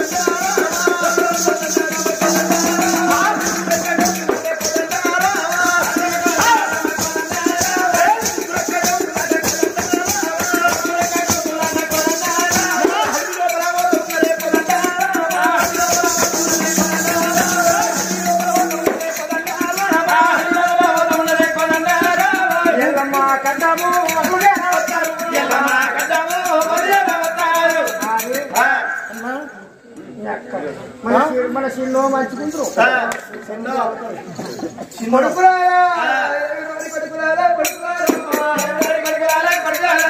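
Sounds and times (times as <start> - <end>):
fast drumming: 0.0 - 28.4
jingling rattle: 0.0 - 28.5
wavering melody: 0.8 - 5.6, 15.6 - 20.8.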